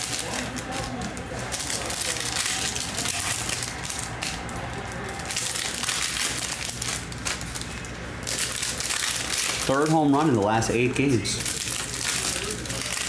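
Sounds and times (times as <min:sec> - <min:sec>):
foil wrappers crinkling and tearing: 0:00.0 - 0:13.0.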